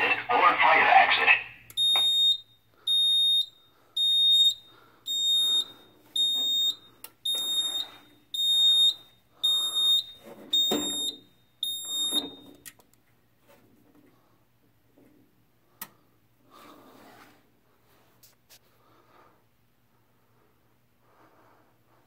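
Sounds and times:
fire alarm high-pitched pulsing tone: 1.8s - 12.5s.

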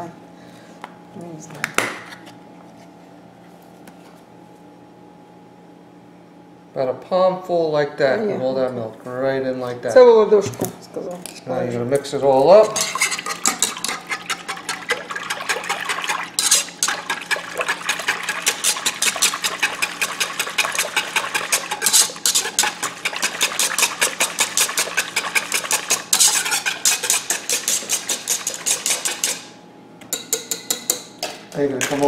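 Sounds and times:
liquid sloshing: 12.6s - 29.5s
whisk clicking against pot: 12.6s - 29.5s.

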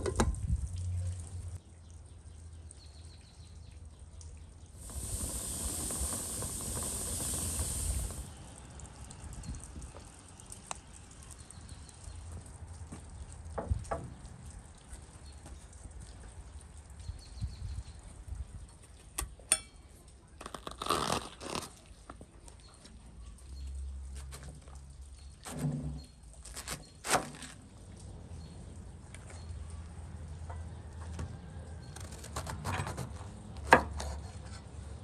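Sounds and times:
knife crunching through cabbage: 20.4s - 22.2s.

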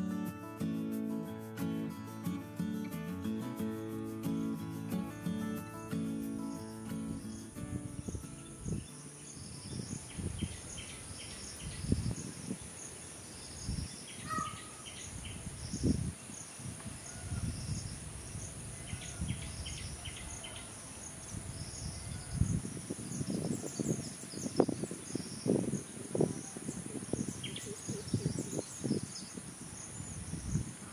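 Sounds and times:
high insect drone: 0.0s - 30.9s
small birds chirping: 5.5s - 30.9s
wind buffeting microphone: 7.0s - 30.9s.

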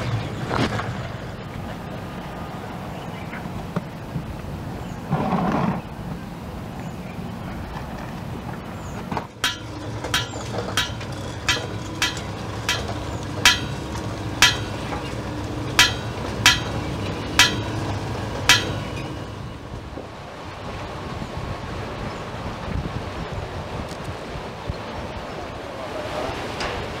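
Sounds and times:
steady low hum: 9.2s - 21.0s
metal plates clinking: 9.3s - 20.0s.

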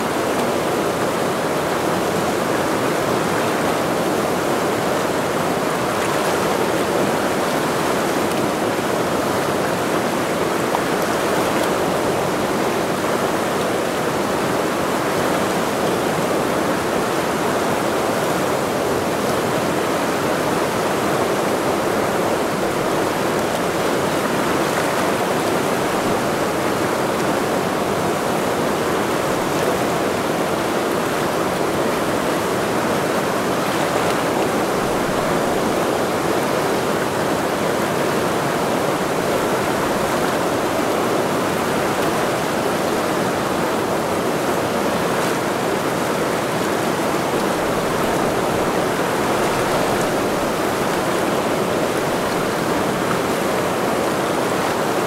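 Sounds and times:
mountain river rushing: 0.0s - 55.0s.

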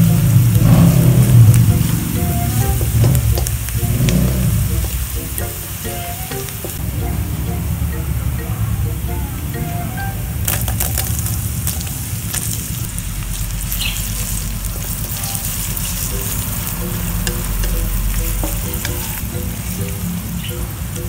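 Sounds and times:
wooden spatula stirring in wok: 0.0s - 6.9s, 12.4s - 21.0s
onion and garlic sizzling in oil: 0.0s - 9.7s, 10.3s - 21.0s.

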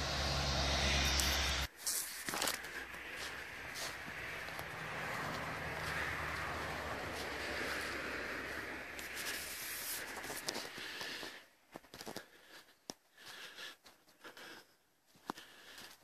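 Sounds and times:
footsteps through dry leaves: 0.8s - 11.3s.

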